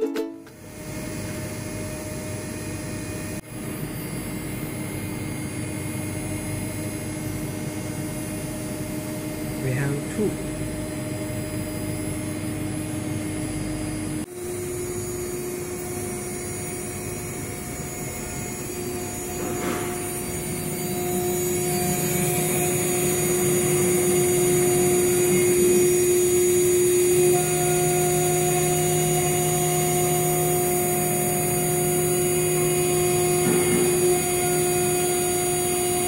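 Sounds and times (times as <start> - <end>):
router spindle whining: 8.0 - 36.0
engraving bit milling metal: 14.5 - 36.0.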